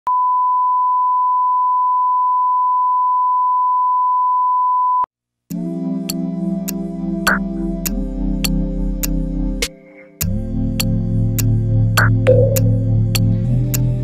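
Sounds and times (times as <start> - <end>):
music with a regular beat: 6.1 - 9.2, 10.2 - 14.0
steady test tone beep: 12.3 - 13.2.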